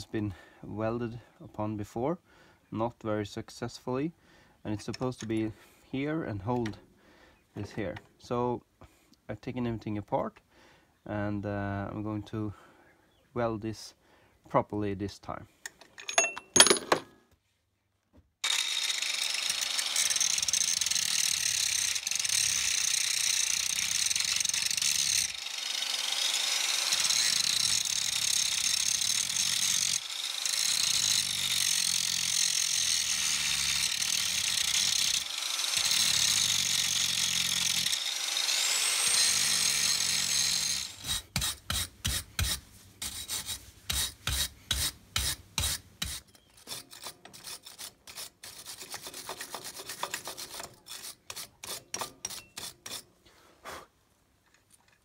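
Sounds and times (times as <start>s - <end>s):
angle grinder grinding steel: 18.4s - 53.0s
quick scraping strokes: 41.0s - 53.9s.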